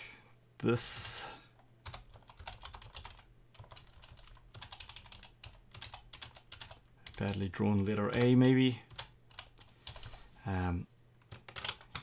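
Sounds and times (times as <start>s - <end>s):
computer keyboard typing: 1.8s - 10.2s, 11.2s - 12.0s.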